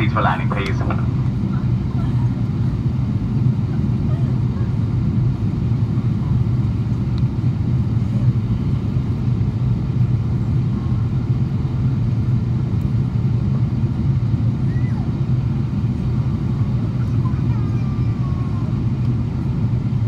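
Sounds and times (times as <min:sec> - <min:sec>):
engine drone: 0:00.0 - 0:17.3.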